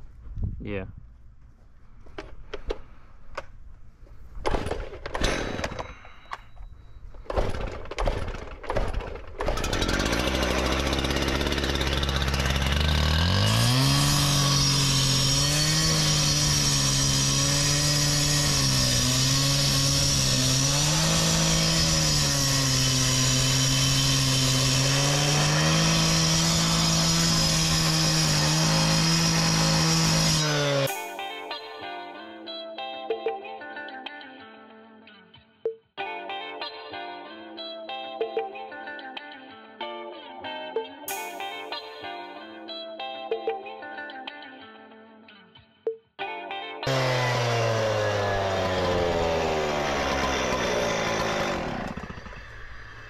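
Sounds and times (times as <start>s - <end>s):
saw pull-start yanks: 7.2s - 31.1s, 46.8s - 53.0s
concrete saw engine cutting: 9.4s - 31.1s, 46.8s - 53.0s.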